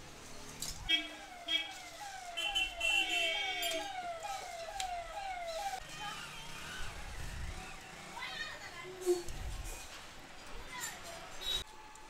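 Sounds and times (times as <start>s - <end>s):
falling electronic siren tone: 0.9s - 8.2s
steady high tone: 1.0s - 8.2s.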